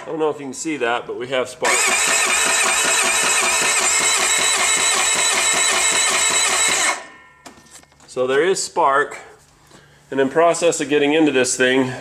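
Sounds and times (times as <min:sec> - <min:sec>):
electric starter cranking engine: 0:01.6 - 0:07.1.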